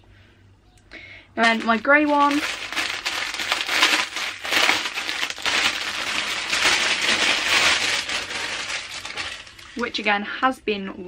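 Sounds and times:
fabric rustling: 1.4s - 10.0s.

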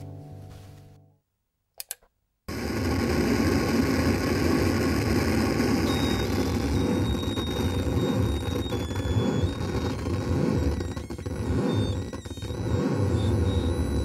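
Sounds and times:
faint high whine: 2.5s - 14.0s.

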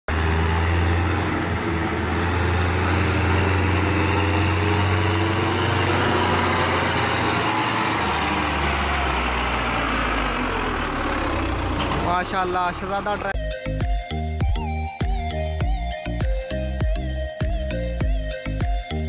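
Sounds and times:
diesel tractor engine running hard: 0.1s - 13.4s.

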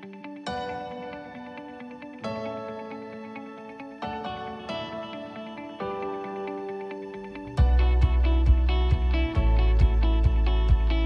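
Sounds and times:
calm instrumental music: 0.0s - 11.0s.

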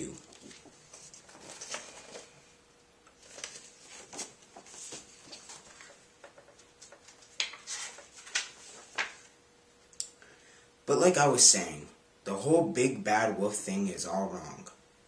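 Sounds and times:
paper pages rustling: 0.0s - 2.4s, 3.1s - 9.4s
page flaps: 0.3s - 2.3s, 3.2s - 9.3s.

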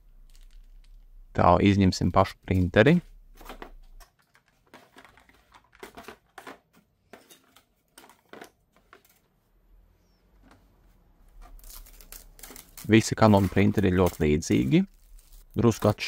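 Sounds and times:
packaging rustling and crinkling: 0.2s - 1.1s, 2.5s - 9.2s, 11.3s - 16.0s.

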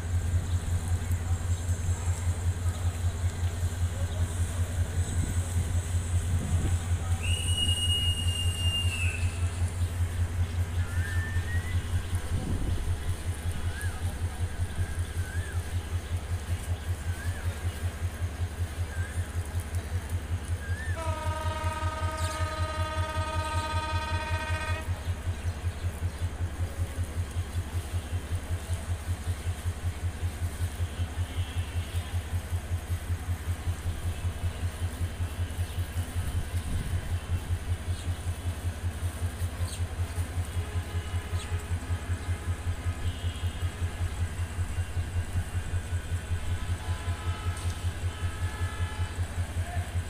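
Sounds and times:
diesel locomotive engine idling: 0.0s - 50.0s.

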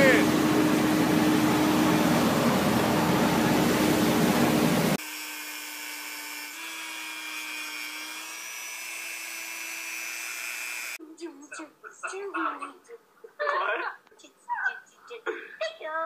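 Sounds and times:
loud rushing noise with hum: 0.0s - 5.0s
electric clippers motor whine: 0.0s - 11.0s.

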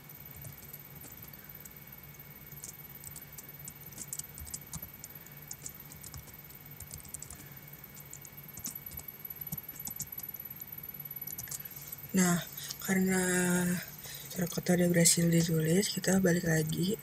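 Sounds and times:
keyboard typing: 0.0s - 13.1s.

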